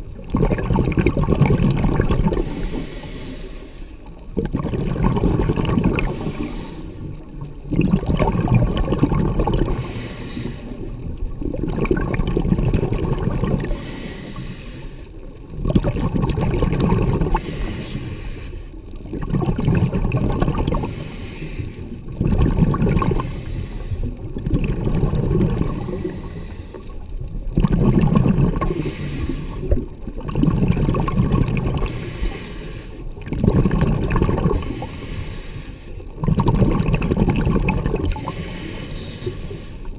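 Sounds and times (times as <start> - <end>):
bubbling exhale: 0.0 - 39.9
regulator hissing inhale: 2.3 - 4.2, 6.0 - 7.3, 9.7 - 11.2, 13.6 - 15.3, 17.3 - 18.9, 20.8 - 22.1, 23.2 - 24.3, 25.7 - 27.1, 28.6 - 29.8, 31.8 - 33.1, 34.5 - 36.1, 38.1 - 39.9.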